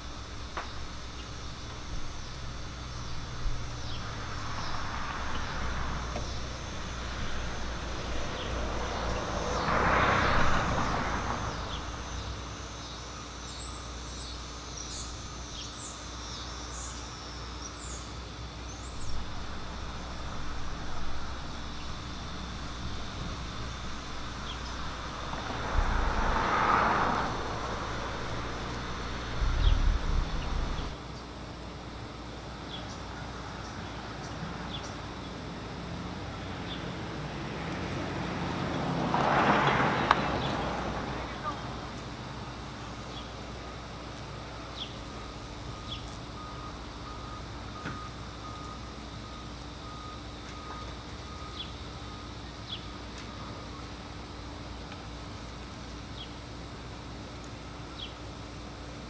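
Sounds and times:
small birds chirping: 0.0 - 9.6, 11.2 - 26.4, 27.2 - 31.3, 32.6 - 35.4, 45.8 - 46.3, 52.6 - 53.0
vehicles passing: 0.0 - 59.0
wind rumbling on microphone: 19.0 - 31.0.

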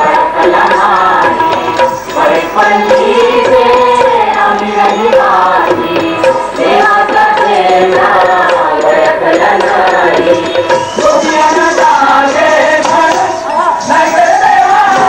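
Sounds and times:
hand drum rhythm: 0.0 - 15.0
voices singing devotional song: 0.0 - 15.0.

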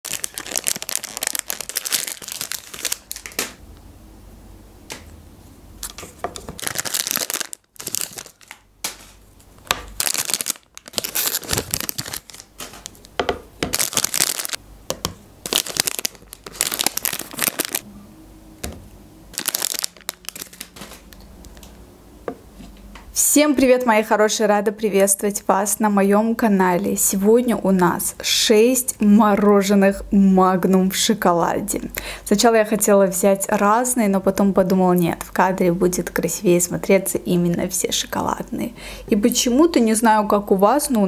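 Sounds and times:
plastic wrappers crinkling and tearing: 0.0 - 3.6, 5.8 - 14.6, 15.4 - 17.8, 19.3 - 21.7.

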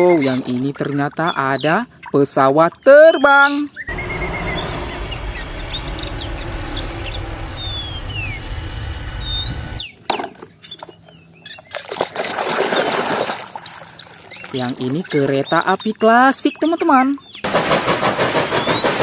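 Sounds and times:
muddy water sloshing in a basin: 0.0 - 3.0, 10.4 - 17.4
birds chirping: 0.0 - 12.0, 12.7 - 17.5
jet airliner landing: 3.8 - 9.9.

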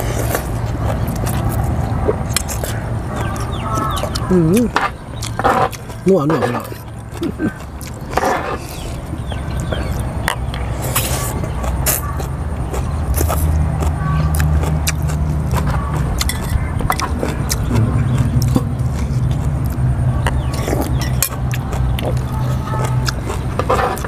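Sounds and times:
low steady hum: 0.0 - 24.0
cutlery clinking on tray and bowl: 16.2 - 17.1.

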